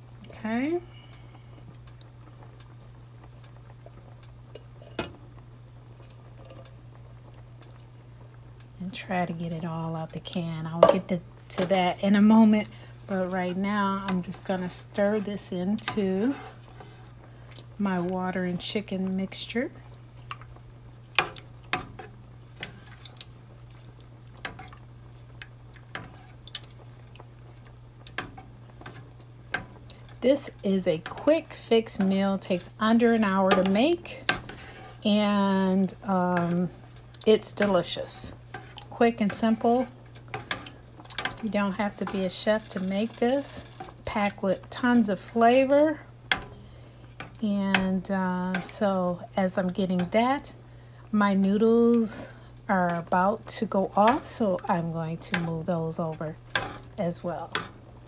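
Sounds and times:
steady low hum: 0.0s - 58.0s
soup sloshing: 19.7s - 44.7s.

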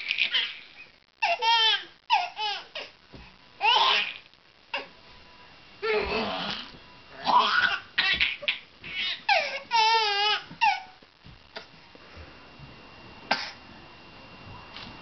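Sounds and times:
baby laughing and shrieking: 0.0s - 2.9s, 3.6s - 4.2s, 7.2s - 11.0s.

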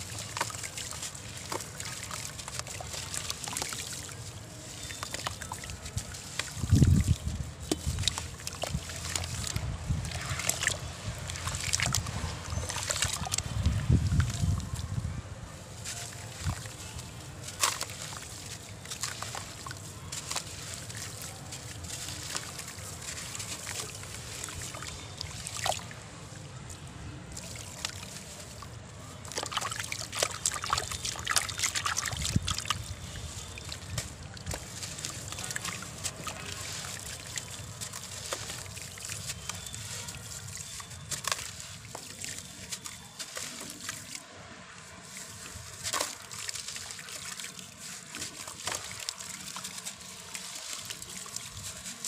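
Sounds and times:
wet sand splashing into water: 0.0s - 14.8s, 15.5s - 52.0s
water sloshing: 0.0s - 15.0s, 15.6s - 52.0s
gritty crumbling and crunching: 15.6s - 26.0s, 26.6s - 44.2s.

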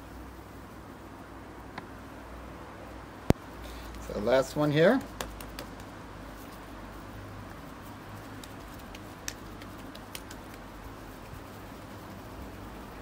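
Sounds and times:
faint steady hiss: 0.0s - 13.0s.

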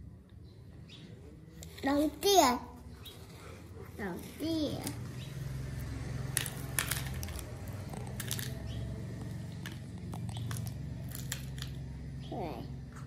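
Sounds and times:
stones clicking on plastic toy: 6.2s - 11.8s.

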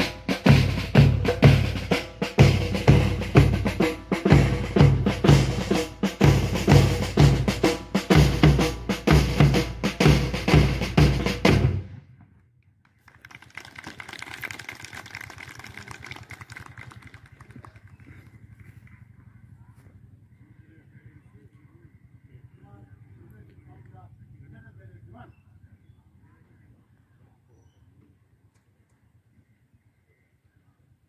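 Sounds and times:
marching drum beat: 0.0s - 12.0s.

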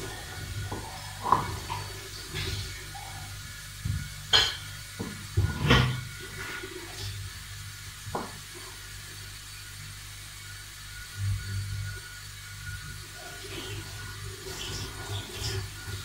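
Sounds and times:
steady low hum: 0.0s - 16.0s
kitchen knocks and clatters: 3.9s - 6.1s.

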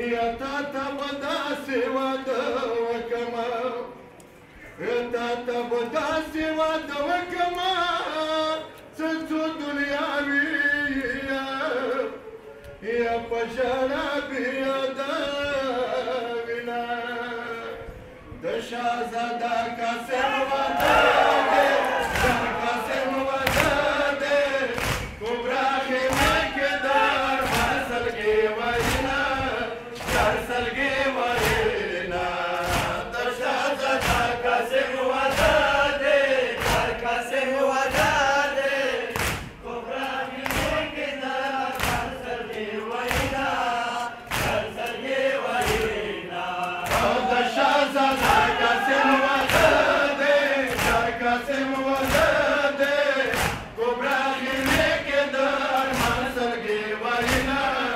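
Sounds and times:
person leading recitation: 0.0s - 57.9s
men chanting a lament: 4.8s - 17.8s, 18.4s - 57.9s
rhythmic chest-beating thumps: 20.8s - 57.9s.

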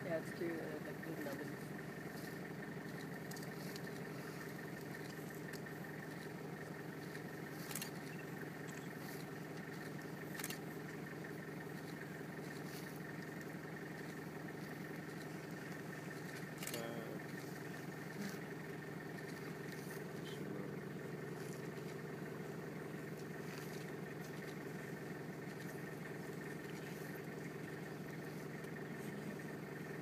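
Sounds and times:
vehicle engine idling: 0.0s - 30.0s
faint clicks: 2.9s - 20.1s.

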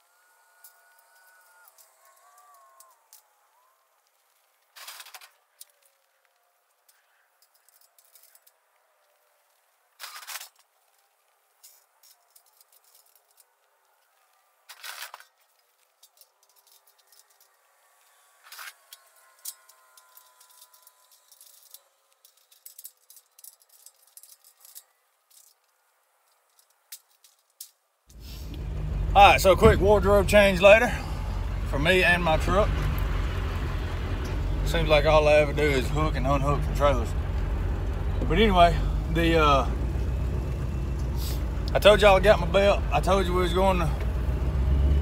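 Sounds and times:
metal pen panels rattling: 14.7s - 17.6s, 18.4s - 27.8s.

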